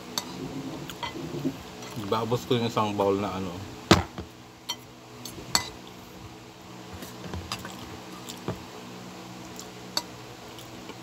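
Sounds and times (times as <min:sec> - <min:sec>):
low hum: 0:00.0 - 0:06.6.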